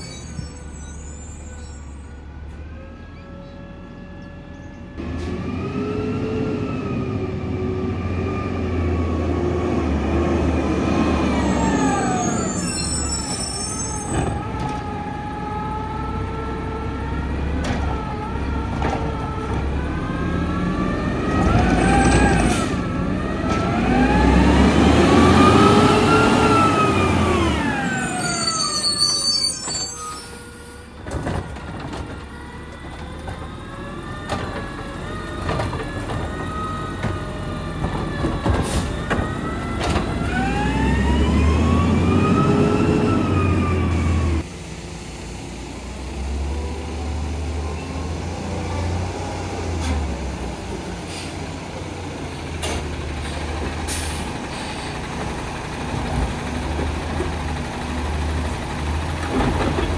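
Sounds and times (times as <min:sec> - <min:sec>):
garbage truck engine whining: 0:00.0 - 0:59.9.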